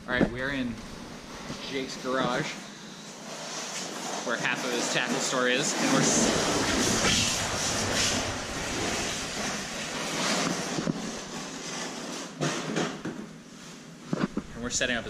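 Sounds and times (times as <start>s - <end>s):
wind noise on microphone: 6.1s - 11.4s.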